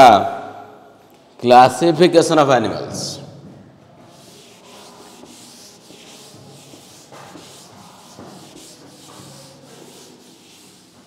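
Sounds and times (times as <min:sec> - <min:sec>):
duster rubbing on chalkboard: 0:04.0 - 0:11.0.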